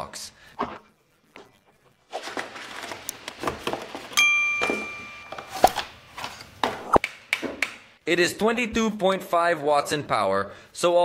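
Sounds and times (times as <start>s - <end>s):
cardboard packaging rustling: 2.2s - 4.2s
bright ding: 4.2s - 5.8s.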